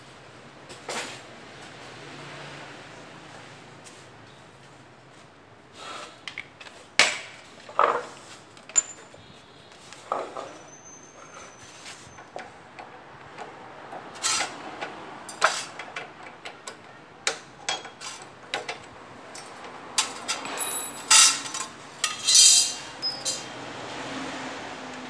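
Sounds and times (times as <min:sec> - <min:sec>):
metallic clinks and scrapes: 0:08.7 - 0:09.2, 0:19.4 - 0:23.6.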